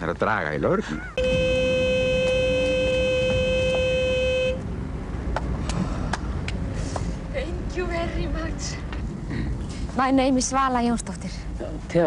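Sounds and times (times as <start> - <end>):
car horn long blast: 1.2 - 4.6.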